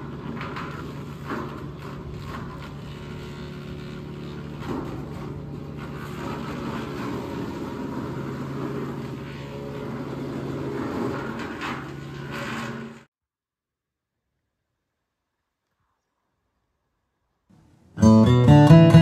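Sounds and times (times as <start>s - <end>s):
wood chipper engine running: 0.0s - 13.0s
branches grinding in chipper: 0.0s - 13.1s.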